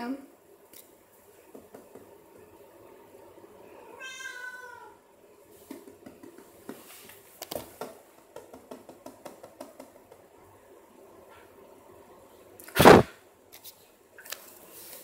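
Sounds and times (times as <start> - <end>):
cat meowing: 3.9 - 5.0.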